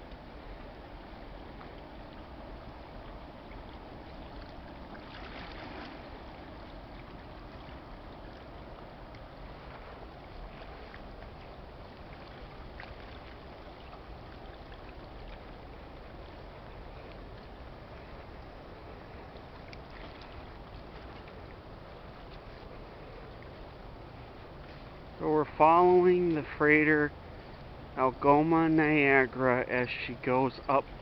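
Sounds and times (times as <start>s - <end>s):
ship engine rumble: 0.0s - 31.0s
wind: 0.0s - 31.0s.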